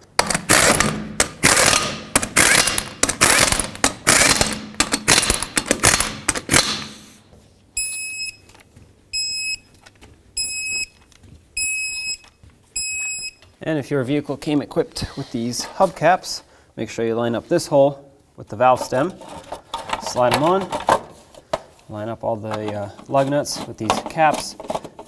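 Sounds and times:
impact gun bursts: 0:00.2 - 0:07.1
torque wrench beeps: 0:07.8 - 0:08.5, 0:09.1 - 0:09.7, 0:11.6 - 0:13.4.

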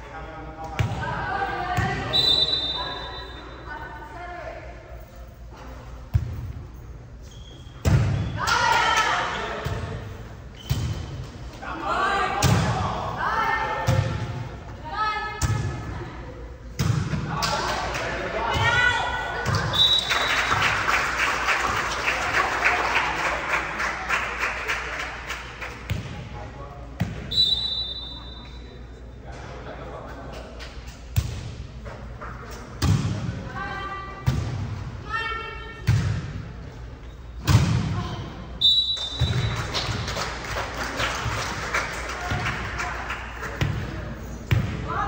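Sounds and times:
players and spectators voices: 0:00.0 - 0:45.0
spectators clapping: 0:20.0 - 0:25.9, 0:39.5 - 0:43.6.

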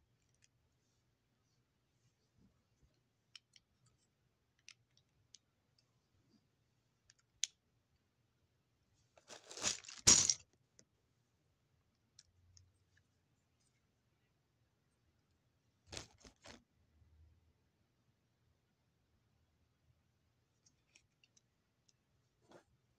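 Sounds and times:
crackling crumpling rustle: 0:09.2 - 0:10.1.

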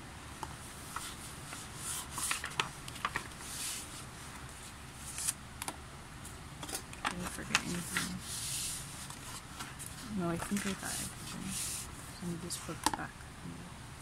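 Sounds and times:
paper sliding and rustling: 0:00.8 - 0:05.4, 0:06.6 - 0:12.0.

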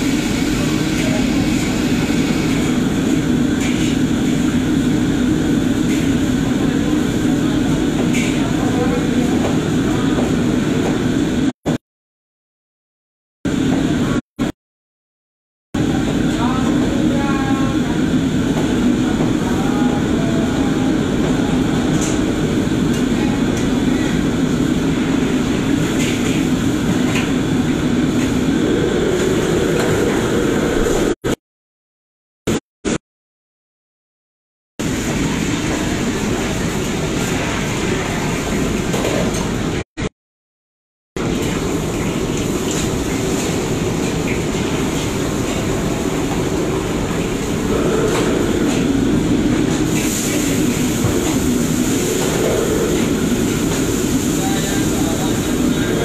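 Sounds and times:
gas burners and extraction hood: 0:00.0 - 0:11.5, 0:15.8 - 0:31.2, 0:41.2 - 0:56.0.

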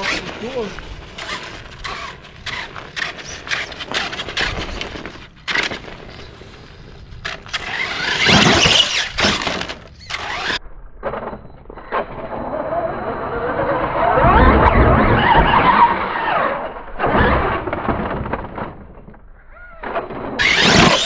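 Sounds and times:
tyres crunching over grit: 0:00.0 - 0:10.5
electric toy truck motor: 0:01.2 - 0:04.9, 0:07.2 - 0:10.6, 0:20.4 - 0:21.0.

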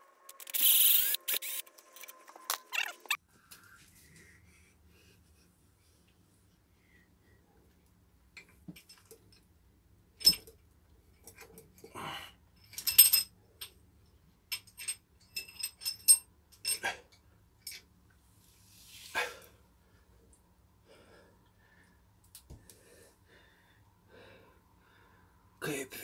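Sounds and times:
metallic clinks and knocks: 0:10.2 - 0:11.8, 0:12.6 - 0:16.8.

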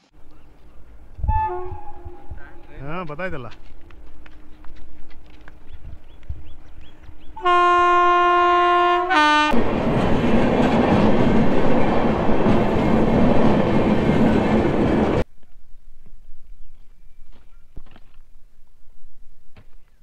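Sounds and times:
train coaches running past: 0:00.0 - 0:15.2
train horn: 0:01.2 - 0:02.8, 0:07.4 - 0:09.6.

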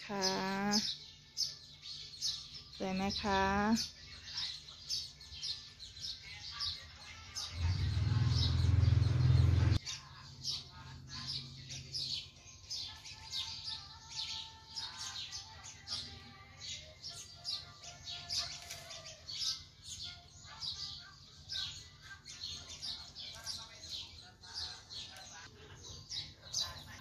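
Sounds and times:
small birds chirping: 0:00.0 - 0:27.0
loud low noise: 0:07.6 - 0:09.8.

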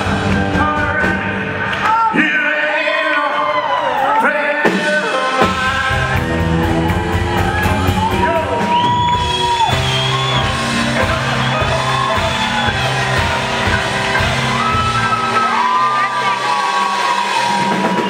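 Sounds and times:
man singing: 0:00.0 - 0:06.7, 0:10.6 - 0:14.5
rock and roll band playing: 0:00.0 - 0:18.0.

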